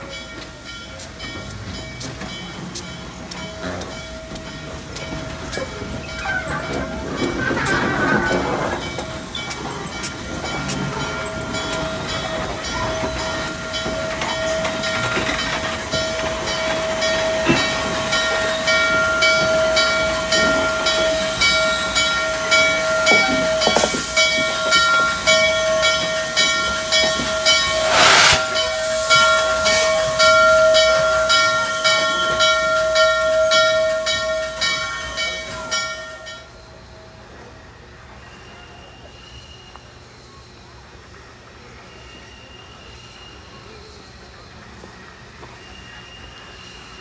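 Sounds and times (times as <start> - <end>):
steam locomotive exhaust chuffs: 0.0 - 35.8
steam hiss burst: 26.7 - 30.3.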